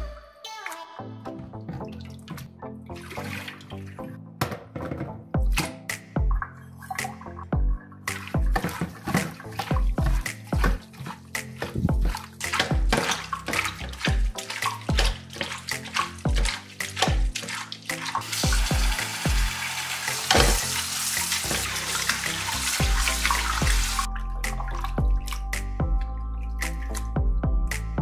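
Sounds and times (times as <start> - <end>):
background music: 0.0 - 28.0
wet squishing scrubbing: 1.7 - 4.2, 8.1 - 24.1
tap running water: 8.1 - 24.1.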